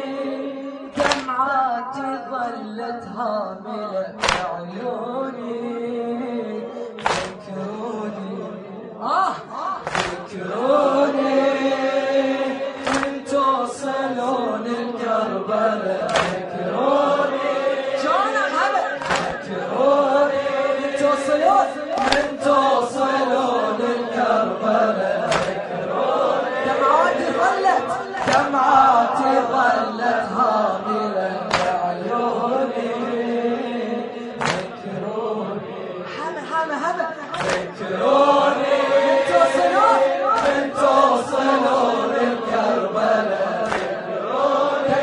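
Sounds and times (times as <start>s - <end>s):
men chanting long notes: 0.0s - 36.4s, 37.2s - 45.0s.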